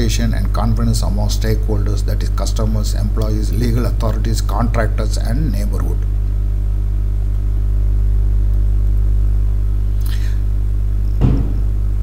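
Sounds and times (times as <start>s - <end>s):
low electrical hum: 0.0s - 12.0s
short low thump: 11.2s - 11.8s.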